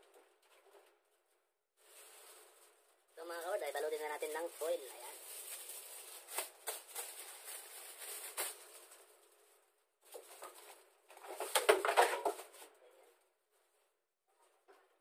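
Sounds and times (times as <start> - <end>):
foil and plastic bags crinkling: 1.8 - 12.7.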